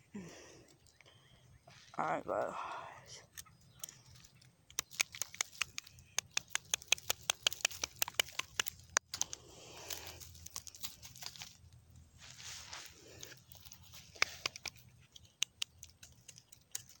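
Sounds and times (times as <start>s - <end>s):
rustle of grass and dirt: 1.6s - 17.0s
roots tearing out of soil: 4.8s - 17.0s.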